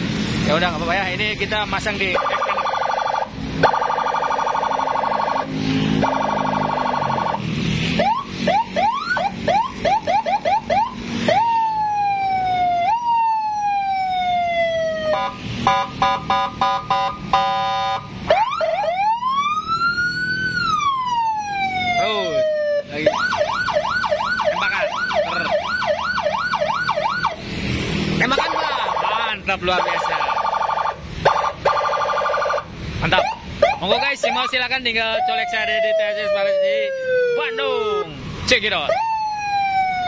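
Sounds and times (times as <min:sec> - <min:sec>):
police siren: 0:02.0 - 0:27.4, 0:28.3 - 0:40.0.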